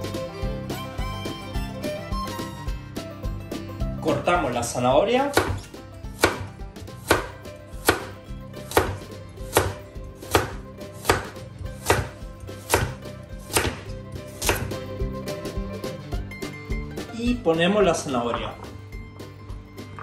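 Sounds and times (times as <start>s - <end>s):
knife chopping on wooden board: 5.3s - 14.8s.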